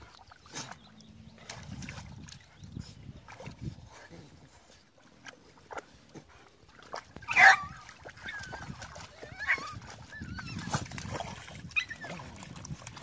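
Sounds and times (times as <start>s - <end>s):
dog crying out: 7.3s - 10.8s, 11.7s - 12.1s
dogs whining: 7.3s - 11.0s, 11.7s - 12.4s.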